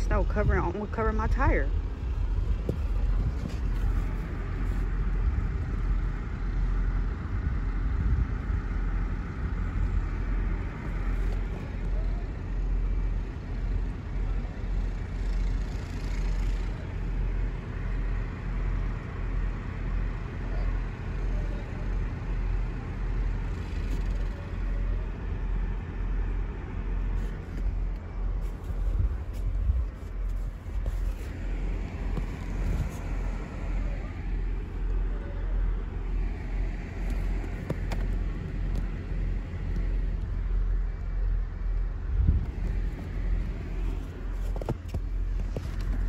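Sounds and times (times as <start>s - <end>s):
wind buffeting microphone: 0.0s - 12.2s, 27.3s - 34.0s, 42.0s - 46.0s.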